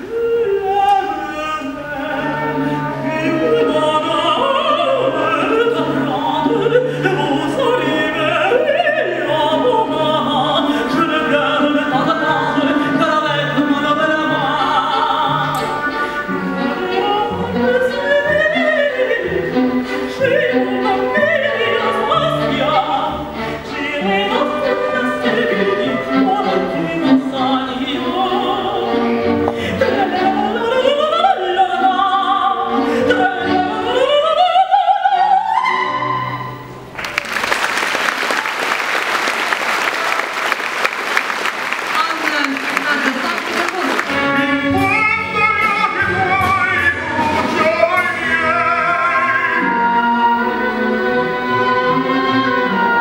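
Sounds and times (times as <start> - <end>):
soprano singing: 0.0 - 36.8, 42.0 - 53.0
symphony orchestra playing: 0.0 - 53.0
audience applause: 36.9 - 44.4.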